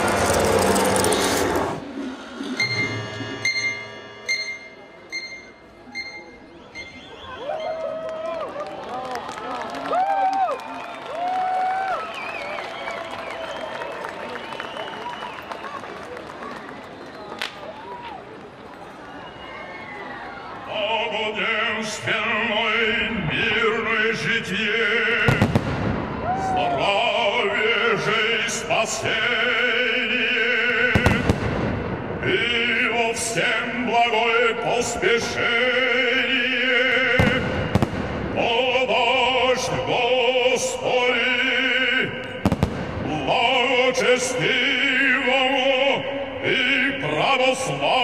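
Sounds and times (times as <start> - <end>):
fireworks cracking and banging: 0.0 - 1.8, 25.2 - 26.6, 30.9 - 32.2, 37.1 - 38.6, 42.3 - 43.4
operatic singing: 0.0 - 4.6, 20.6 - 48.0.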